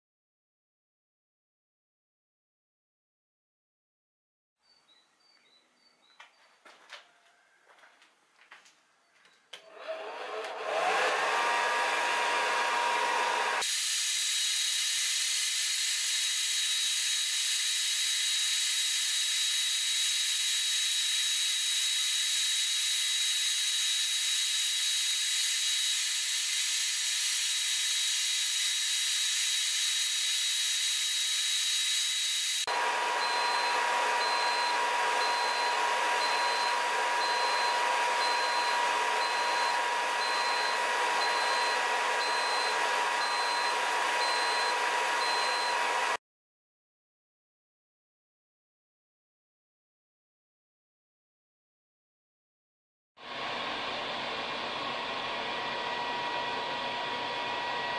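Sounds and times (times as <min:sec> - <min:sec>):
hot air gun fan whine: 0:09.7 - 0:46.2, 0:53.2 - 0:57.9.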